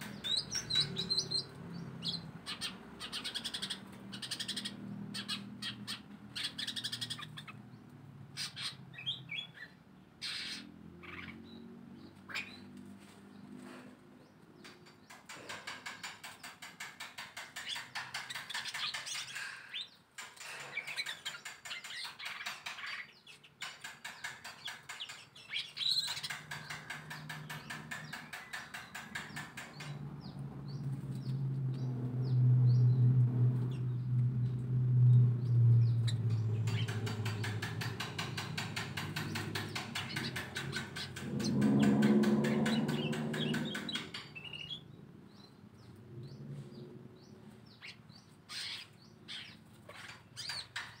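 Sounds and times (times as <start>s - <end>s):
birds chirping and twittering: 0.0s - 51.0s
low drone: 29.2s - 44.8s.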